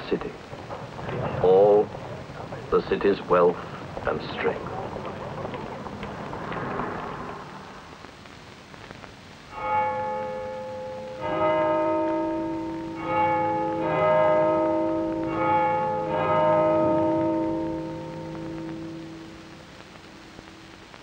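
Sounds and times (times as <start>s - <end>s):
church bells ringing: 9.5s - 19.7s.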